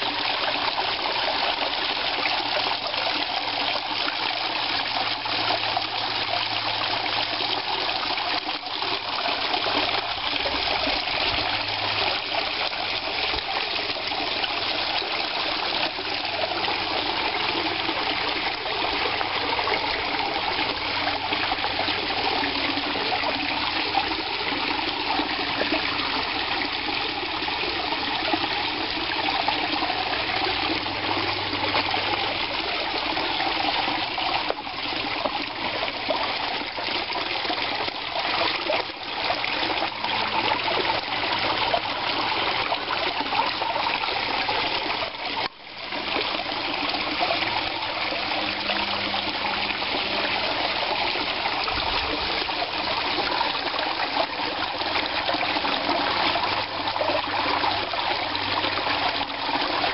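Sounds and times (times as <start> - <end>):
waterfall splashing into pond: 0.0 - 59.9.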